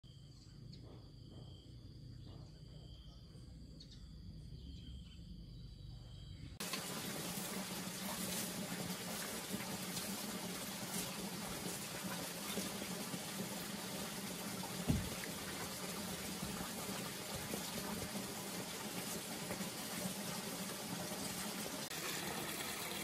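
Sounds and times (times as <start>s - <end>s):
insects trilling: 0.1s - 6.6s.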